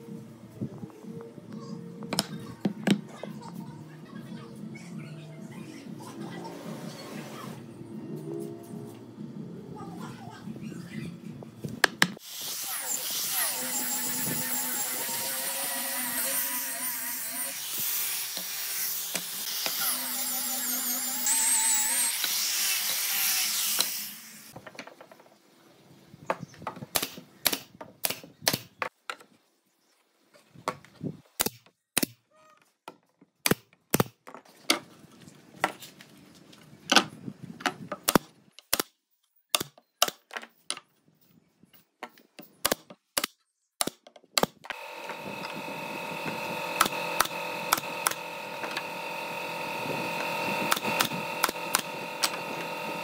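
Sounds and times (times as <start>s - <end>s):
angle grinder sanding wood: 12.2s - 24.5s, 44.7s - 53.0s.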